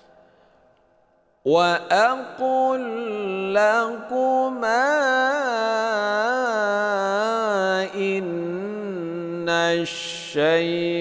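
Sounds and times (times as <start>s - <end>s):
man reciting melodically: 1.4s - 11.0s.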